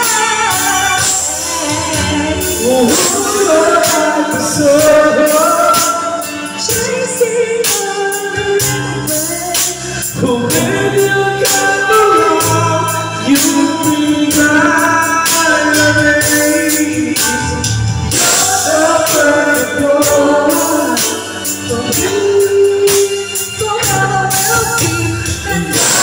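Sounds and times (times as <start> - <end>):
backing track with beat: 0.0 - 26.0
men singing karaoke: 0.0 - 26.0.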